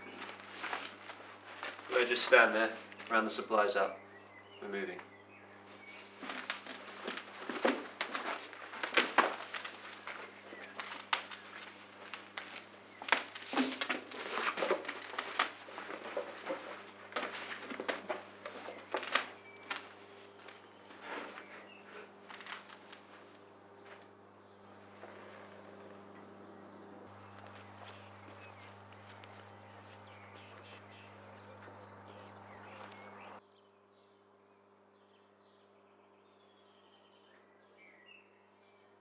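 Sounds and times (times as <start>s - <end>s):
cloth and bags rustling: 0.0s - 3.2s, 5.6s - 24.0s
scuffs and knocks: 0.0s - 3.2s, 5.7s - 24.0s
low steady hum: 0.0s - 38.9s.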